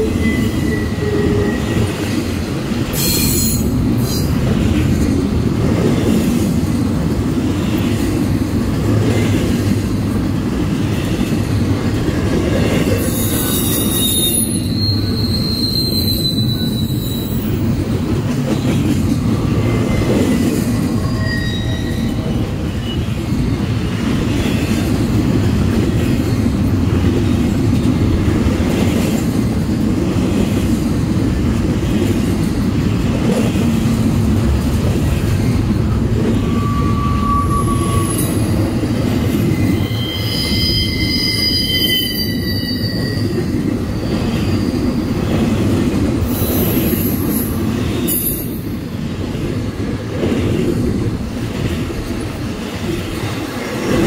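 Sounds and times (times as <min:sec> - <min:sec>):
high-pitched wheel squeal: 0:00.0 - 0:01.9, 0:13.0 - 0:17.5, 0:20.9 - 0:23.0, 0:36.4 - 0:38.7, 0:39.4 - 0:44.9
freight train wheels clattering: 0:00.0 - 0:21.2.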